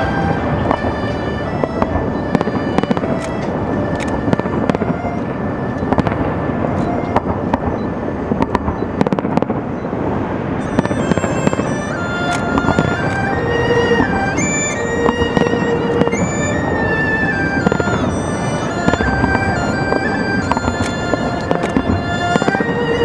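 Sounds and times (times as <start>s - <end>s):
fireworks crackling and banging: 0.0s - 23.0s.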